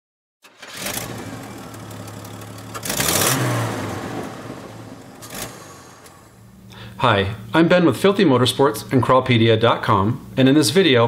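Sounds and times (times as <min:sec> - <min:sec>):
vehicle engine revving: 0:00.6 - 0:06.6.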